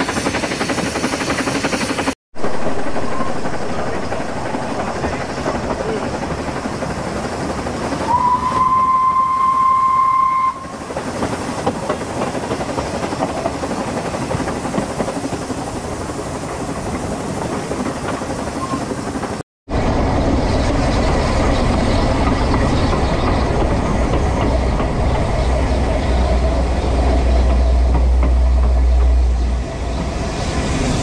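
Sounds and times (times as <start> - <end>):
steam locomotive running on rails: 0.0 - 31.0
steam whistle: 8.0 - 10.8.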